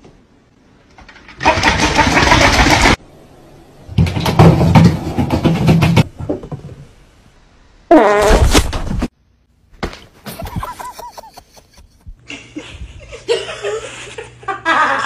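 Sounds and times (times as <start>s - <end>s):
people laughing and giggling: 10.3s - 15.0s.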